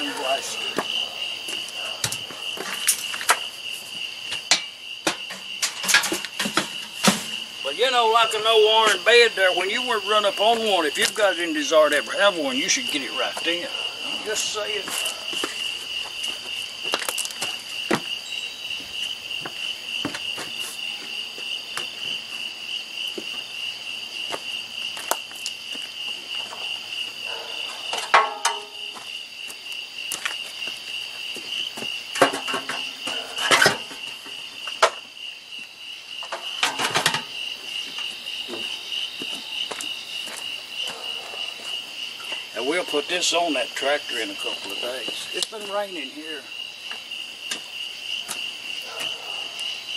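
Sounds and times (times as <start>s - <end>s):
night insects trilling: 0.0s - 49.9s
sharp knocks and clunks: 4.3s - 7.5s, 27.8s - 29.0s, 31.8s - 35.0s, 36.2s - 37.4s.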